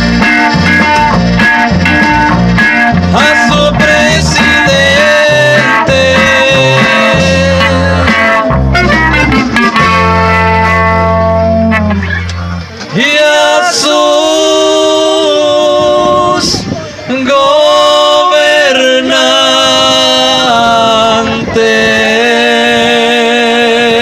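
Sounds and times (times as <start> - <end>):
live band over loudspeakers: 0.0 - 24.0
men singing in harmony: 3.0 - 8.5, 12.9 - 24.0.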